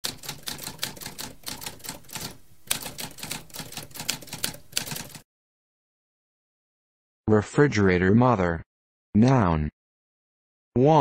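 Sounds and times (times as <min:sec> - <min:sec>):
typewriter keys clacking: 0:00.0 - 0:05.2.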